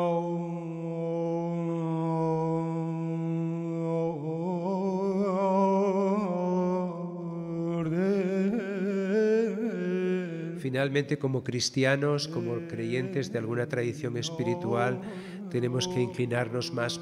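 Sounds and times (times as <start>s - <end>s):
low voice chanting: 0.0s - 17.0s.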